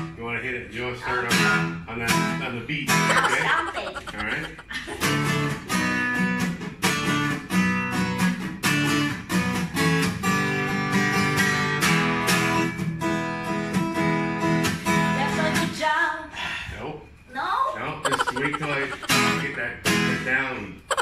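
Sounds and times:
acoustic guitar strumming: 5.0 - 15.4, 18.1 - 20.3.

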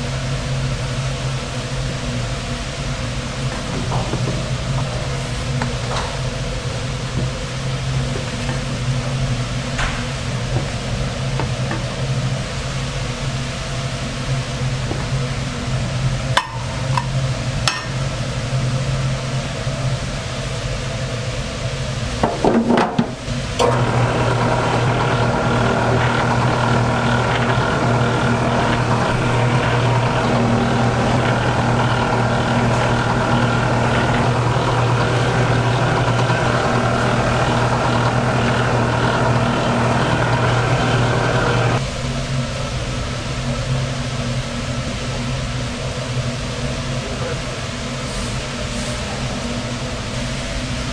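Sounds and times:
machine motor humming: 23.3 - 41.8.

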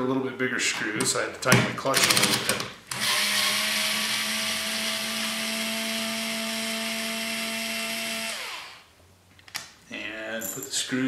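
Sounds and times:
electric screwdriver motor whine: 3.0 - 8.8.

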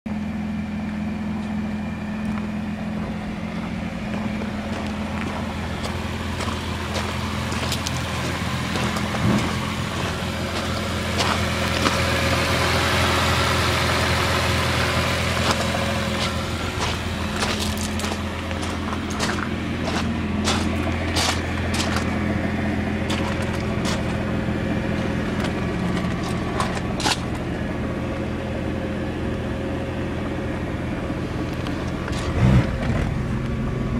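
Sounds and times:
car engine idling: 0.1 - 33.9
footsteps on gravel: 2.3 - 12.6, 15.0 - 27.7, 31.4 - 32.6.

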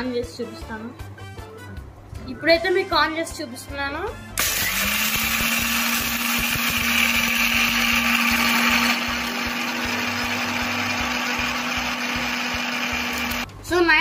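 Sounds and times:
mixer grinder motor hum: 4.4 - 13.5.

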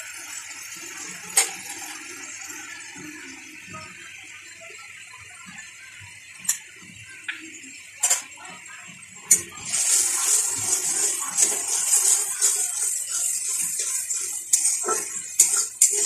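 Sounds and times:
onion masala frying in oil: 0.0 - 16.0
metal spatula stirring: 9.6 - 16.0.

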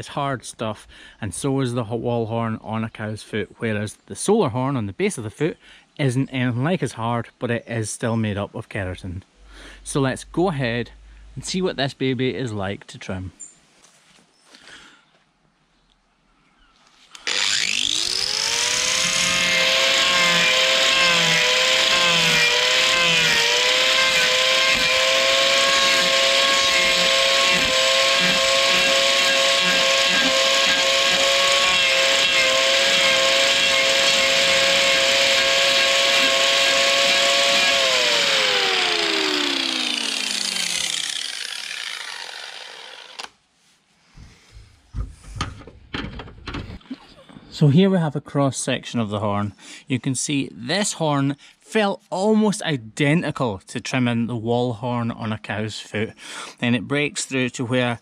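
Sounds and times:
angle grinder cutting horn: 17.2 - 43.3.

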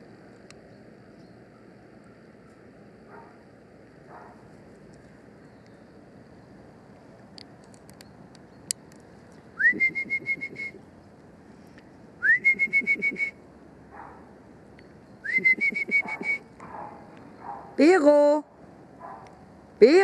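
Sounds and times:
person whistling with trill: 9.6 - 10.8, 12.2 - 13.4, 15.2 - 16.4.

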